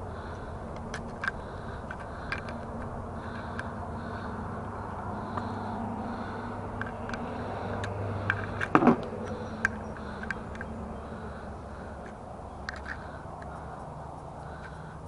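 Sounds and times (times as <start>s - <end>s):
outdoor background noise: 0.0s - 15.0s
small metal parts clicking: 0.8s - 3.8s, 6.8s - 10.8s, 12.0s - 13.8s.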